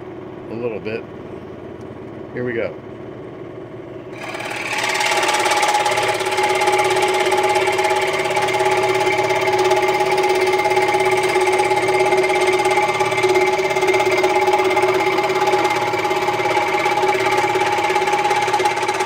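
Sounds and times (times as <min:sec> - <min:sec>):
scroll saw cutting: 0:04.1 - 0:19.0.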